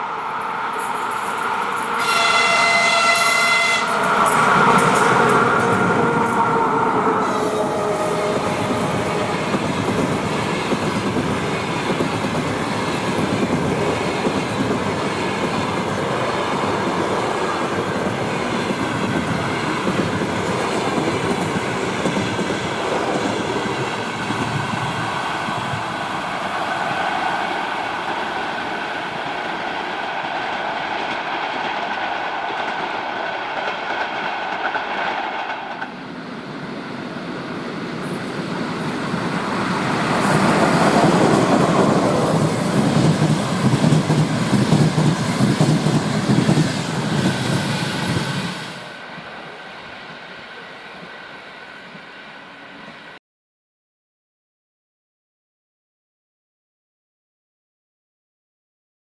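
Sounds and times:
train wheels running over rails: 0:00.4 - 0:49.0.

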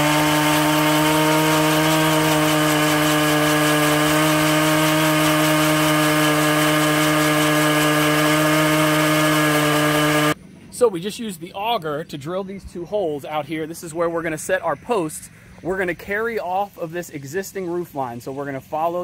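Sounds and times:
earth auger engine running: 0:00.0 - 0:10.4.

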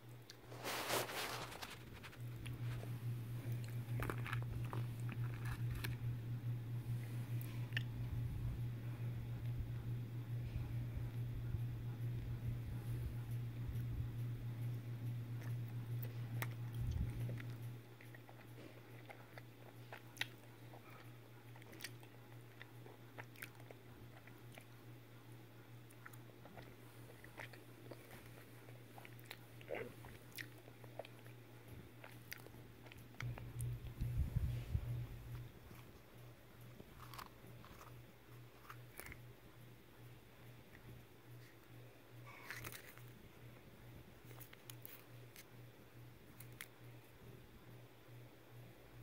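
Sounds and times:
low hum: 0:00.0 - 0:49.0
chewing chocolate: 0:00.1 - 0:08.3, 0:09.3 - 0:47.1
foil wrapper crinkling: 0:00.4 - 0:02.9.

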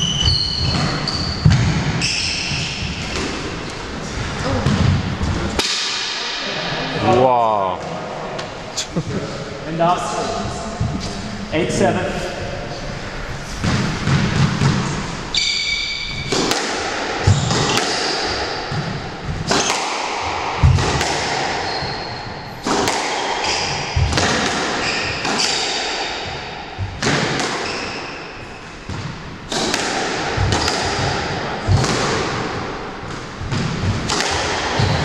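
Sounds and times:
shoes squeaking on wooden floor: 0:00.0 - 0:03.2, 0:21.6 - 0:22.6
squash ball hitting rackets and walls: 0:00.0 - 0:06.6, 0:13.5 - 0:35.0.

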